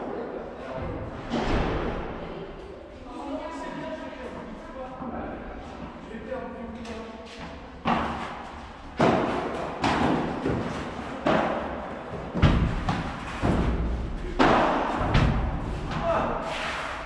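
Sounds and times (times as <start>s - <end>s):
ball hit with rackets: 7.8s - 16.1s.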